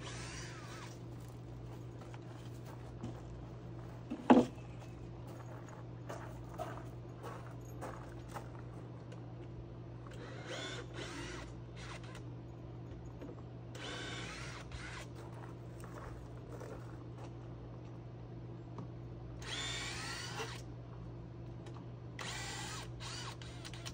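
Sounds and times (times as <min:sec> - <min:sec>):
cordless drill motor whine: 0:00.0 - 0:01.1, 0:10.1 - 0:12.2, 0:13.7 - 0:15.1, 0:19.4 - 0:20.7, 0:22.2 - 0:23.9
steady low hum: 0:00.0 - 0:23.9.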